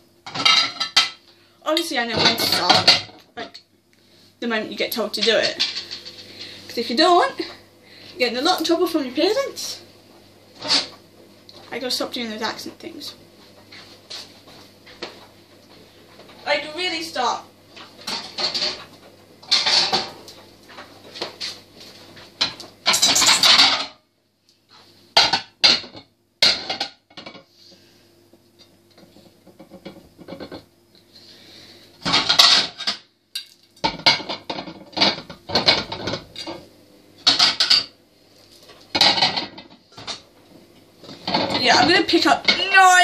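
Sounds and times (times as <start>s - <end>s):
plates and cutlery clattering: 0.3s - 1.2s, 2.2s - 3.2s, 5.2s - 6.2s, 18.0s - 20.2s, 22.4s - 24.0s, 29.1s - 30.6s, 32.0s - 36.6s, 37.2s - 37.9s, 38.9s - 40.2s, 41.1s - 42.7s.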